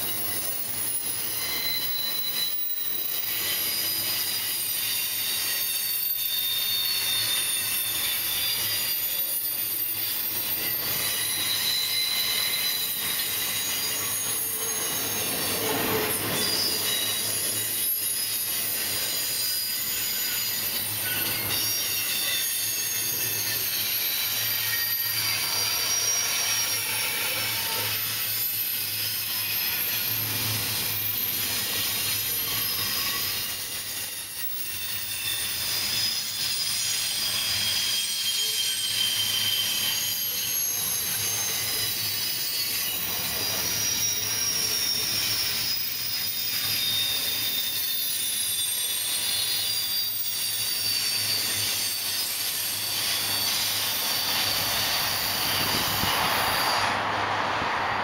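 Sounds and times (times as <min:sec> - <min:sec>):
freight train rumble and rattle: 0:00.0 - 0:58.0
train wheels squealing: 0:00.0 - 0:58.0.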